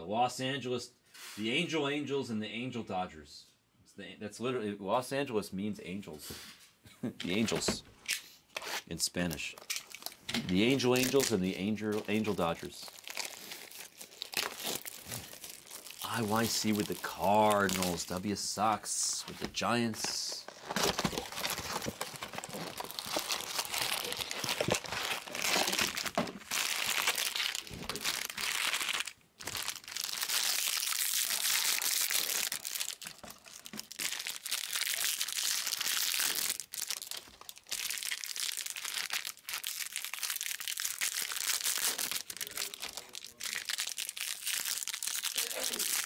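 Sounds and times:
foil wrappers tearing and crinkling: 8.5 - 18.3, 19.6 - 46.0.

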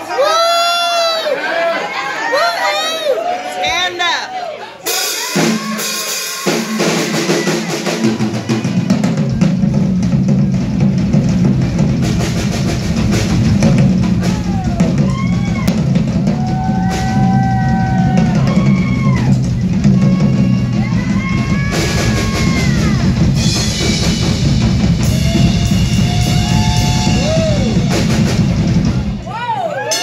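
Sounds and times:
rock drum kit playing fast: 4.8 - 30.0
bass drum: 8.1 - 29.4.

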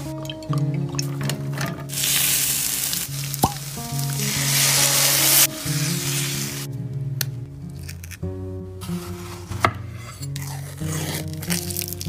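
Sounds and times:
background music: 0.0 - 12.0
onions sizzling in a frying pan: 1.9 - 6.7.

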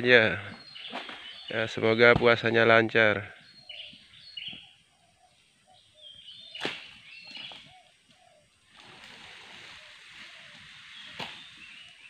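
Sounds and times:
bird chirps: 0.2 - 2.7, 3.3 - 12.0
palm fronds rustling: 0.8 - 2.4, 6.5 - 12.0
harvesting tool chop: 6.6 - 6.9.

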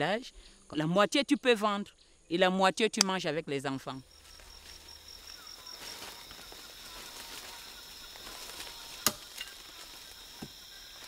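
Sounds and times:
high-pitched insect drone: 4.0 - 11.0
faint bird calls: 4.2 - 11.0.

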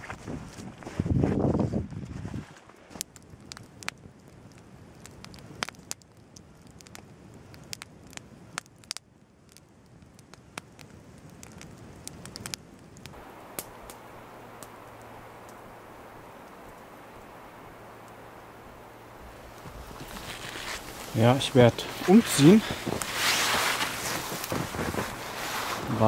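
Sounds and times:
campfire crackling and popping: 2.6 - 26.0
steady rushing noise: 13.1 - 26.0.

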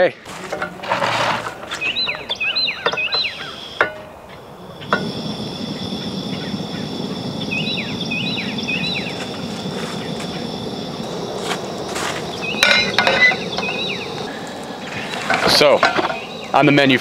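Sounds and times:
gas burner hissing: 0.3 - 17.0
birds chirping: 1.2 - 17.0
burner igniting with a pop: 4.8 - 5.4.

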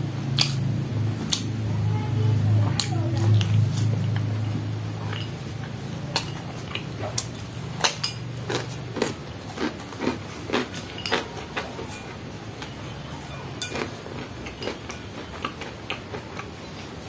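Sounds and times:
low steady hum: 0.0 - 17.0
chewing and mouth smacks: 0.4 - 0.7, 1.3 - 1.5, 5.0 - 11.8.

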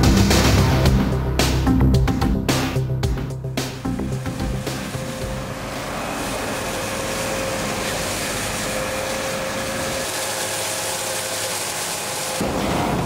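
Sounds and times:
tractor engine: 3.0 - 13.0
hedge cutter whining: 3.6 - 13.0.

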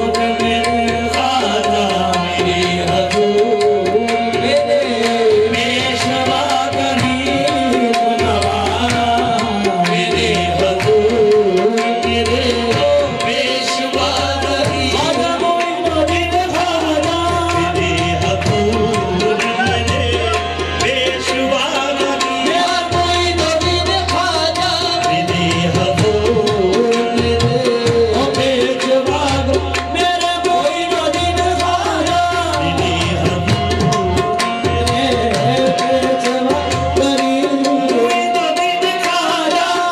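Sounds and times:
harmonium drone: 0.0 - 39.9
tabla rhythm: 0.0 - 39.9.

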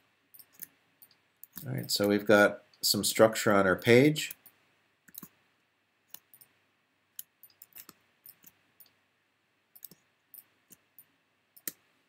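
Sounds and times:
computer mouse clicking: 0.3 - 1.7, 4.3 - 5.4, 6.1 - 9.0, 9.7 - 11.9.

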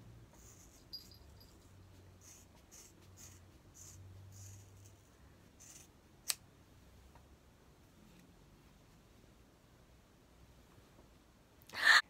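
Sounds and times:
scissors snip: 6.2 - 6.4.

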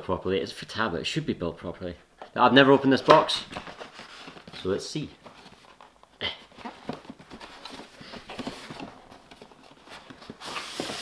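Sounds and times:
box sliding open with rustling: 7.4 - 11.0.

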